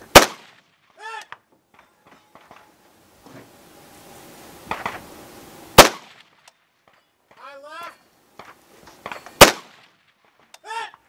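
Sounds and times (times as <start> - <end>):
rifle shot: 0.1 - 0.8, 5.8 - 6.4, 9.4 - 10.0.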